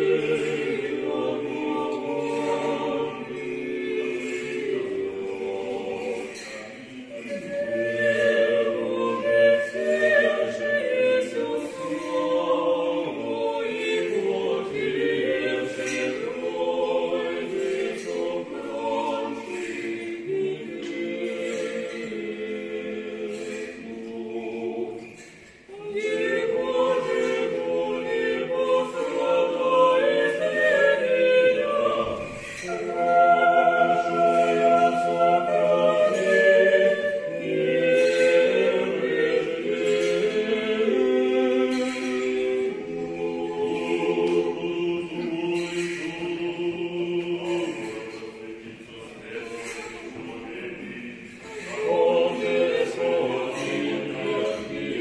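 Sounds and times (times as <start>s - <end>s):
choir singing unaccompanied chant: 0.0s - 55.0s.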